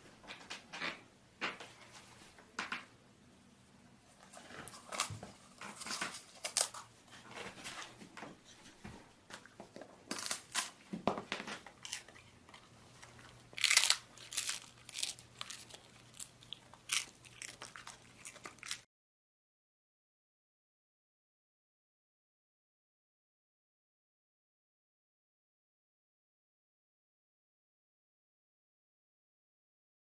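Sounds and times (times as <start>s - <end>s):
dog chewing crunchy treat: 11.8s - 18.8s.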